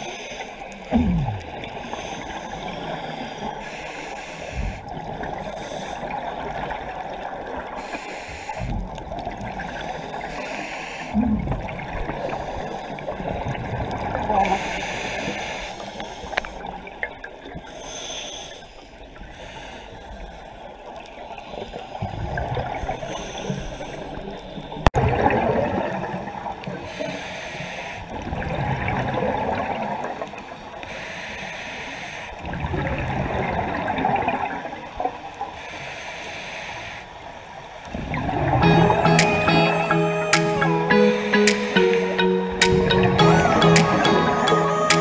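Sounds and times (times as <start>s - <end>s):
bubbling exhalation underwater: 0.9s - 1.8s.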